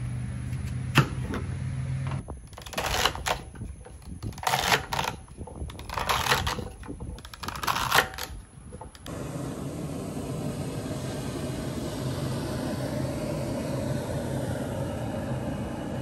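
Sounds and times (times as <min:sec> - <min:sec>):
steady rushing noise: 0:09.1 - 0:16.0.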